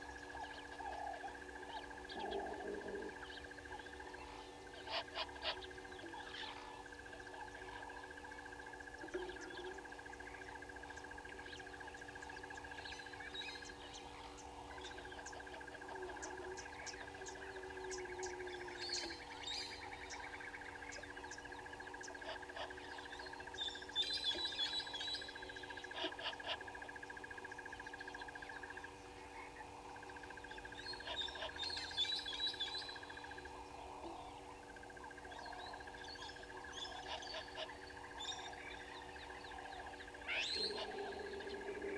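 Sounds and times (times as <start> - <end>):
birds chirping: 0.0 - 41.9.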